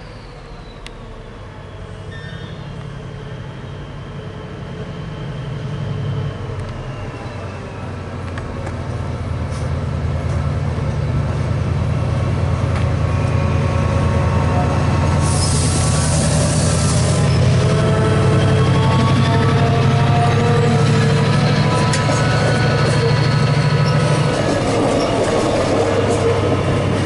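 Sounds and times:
diesel locomotive engine droning: 0:00.0 - 0:27.0
loud hiss: 0:15.1 - 0:17.4.

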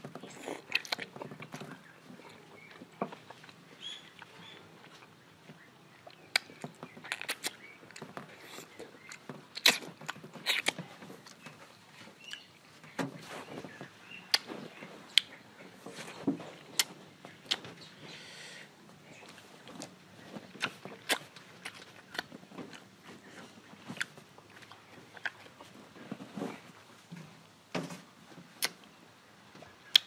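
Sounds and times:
wet mouth smacks eating: 0:06.3 - 0:11.4.

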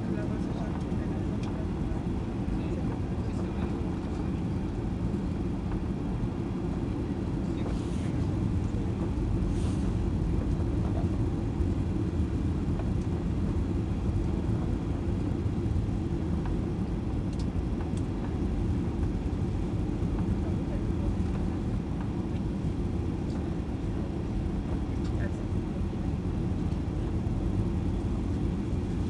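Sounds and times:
airplane engines rumbling: 0:00.0 - 0:29.0
rushing air: 0:09.3 - 0:10.4.

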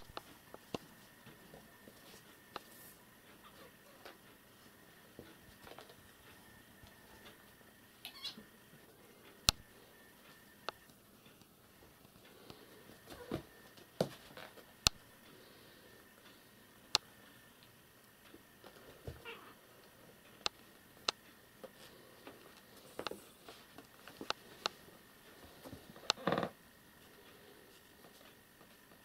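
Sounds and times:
kittens mewing: 0:03.4 - 0:04.1, 0:19.1 - 0:19.6
cats pouncing with taps and knocks: 0:13.0 - 0:14.6.

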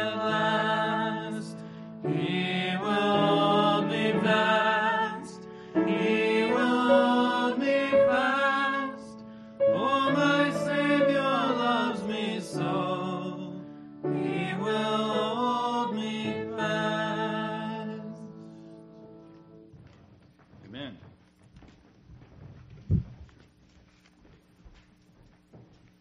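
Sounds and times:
mixed voices singing a hymn: 0:00.0 - 0:19.2.

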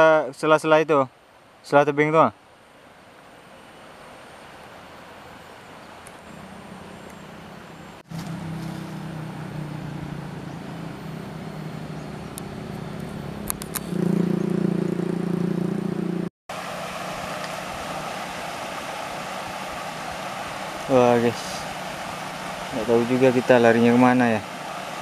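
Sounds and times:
stream rushing over weir: 0:00.0 - 0:14.1, 0:16.5 - 0:25.0
low engine drone: 0:06.3 - 0:25.0.

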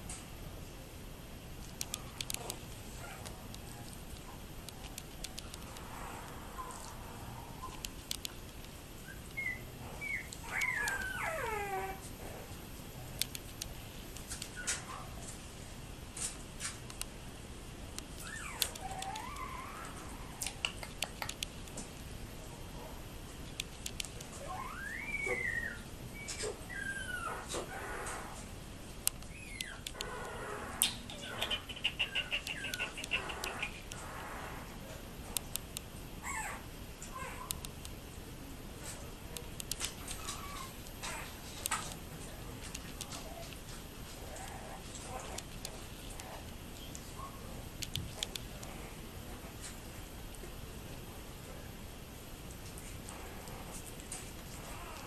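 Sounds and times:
sharp clicks: 0:01.6 - 0:02.8, 0:03.5 - 0:05.9, 0:07.7 - 0:09.5, 0:13.2 - 0:14.8, 0:20.4 - 0:22.0, 0:23.4 - 0:24.3, 0:29.0 - 0:30.1, 0:30.8 - 0:34.0, 0:35.4 - 0:35.9, 0:37.5 - 0:38.0, 0:39.4 - 0:42.0, 0:47.8 - 0:48.7
faint clicks: 0:01.6 - 0:06.9, 0:07.6 - 0:09.5, 0:47.8 - 0:48.8
puppies whimpering: 0:09.1 - 0:12.0, 0:18.2 - 0:20.4, 0:24.4 - 0:28.4, 0:29.3 - 0:33.9, 0:54.6 - 0:55.0.

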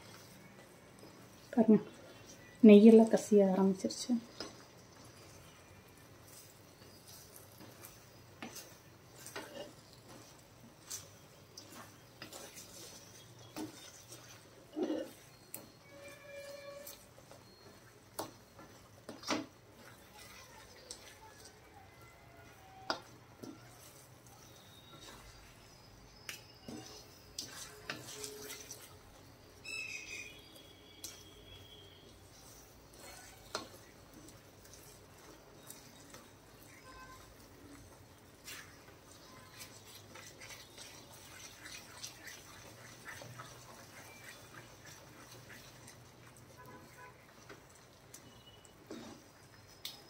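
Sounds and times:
spatula scraping a pan: 0:06.2 - 0:21.5, 0:22.1 - 0:49.8
brief high squeak: 0:15.4 - 0:17.6.

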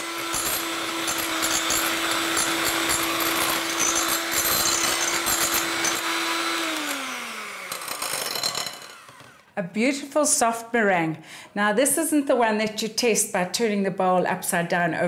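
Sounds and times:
electric hand mixer whisking: 0:00.0 - 0:09.6.

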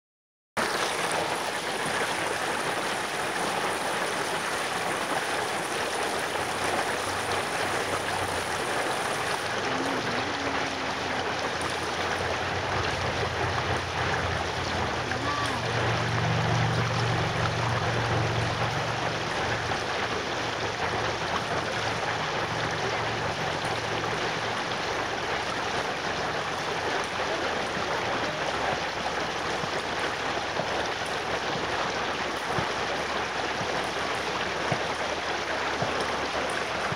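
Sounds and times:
creek rushing over stones: 0:00.6 - 0:36.9.

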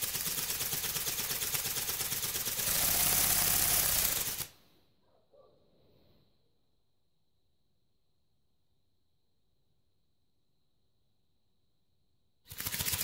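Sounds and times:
toy ornithopter wings buzzing: 0:00.0 - 0:04.5, 0:12.5 - 0:13.0.

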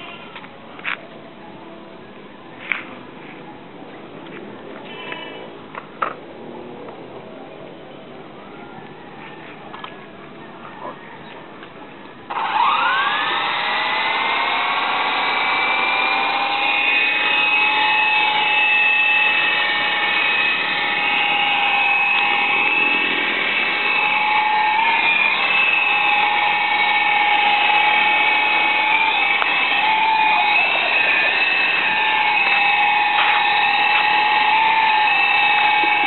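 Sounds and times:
toy helicopter motor whine: 0:12.3 - 0:36.0.

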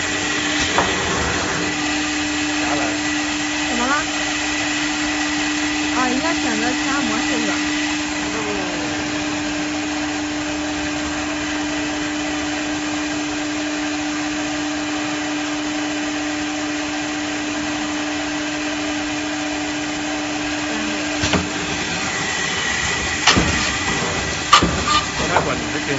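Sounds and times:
cnc router humming: 0:00.0 - 0:25.9
sharp knocks: 0:23.1 - 0:25.6.

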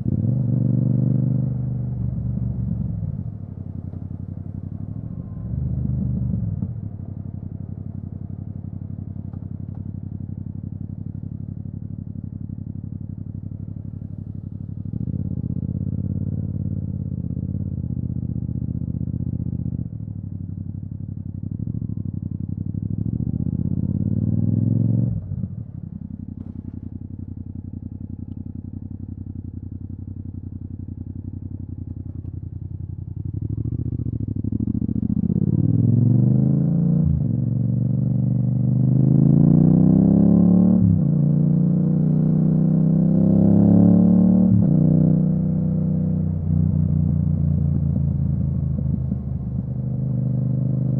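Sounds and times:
motorcycle engine revving: 0:00.0 - 0:07.0, 0:21.6 - 0:32.3, 0:33.1 - 0:50.9.

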